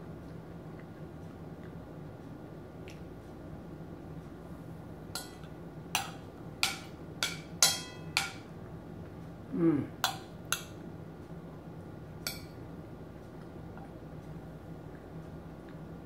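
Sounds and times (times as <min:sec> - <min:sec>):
cutlery clinking on a plate: 0:05.2 - 0:08.5
person humming: 0:09.5 - 0:10.0.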